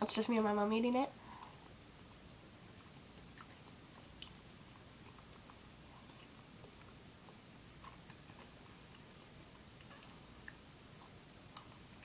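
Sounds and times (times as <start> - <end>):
faint chewing: 2.7 - 12.0.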